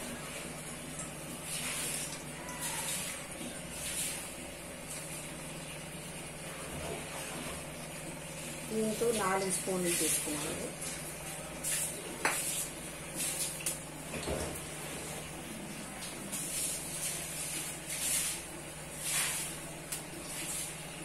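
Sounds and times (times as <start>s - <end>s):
gas burner hum and hiss: 6.0s - 21.0s.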